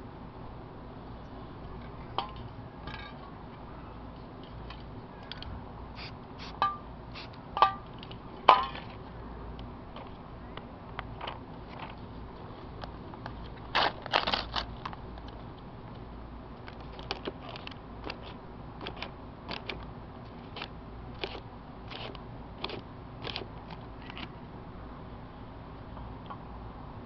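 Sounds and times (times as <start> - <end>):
paper crinkling and rustling: 13.5 - 15.0.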